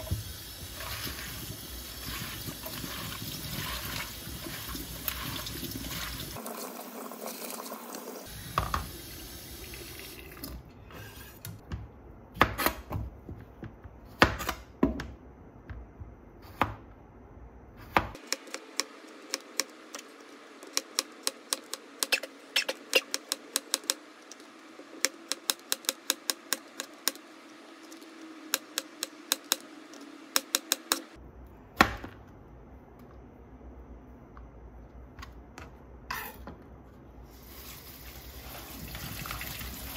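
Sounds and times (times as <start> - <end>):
water running in sink: 0.0 - 10.7, 37.3 - 39.9.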